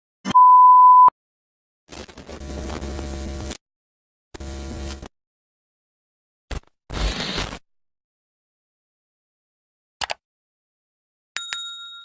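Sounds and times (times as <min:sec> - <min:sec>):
test tone beep: 0:00.3 - 0:01.1
electrical buzz and static: 0:01.9 - 0:03.6, 0:04.4 - 0:05.1.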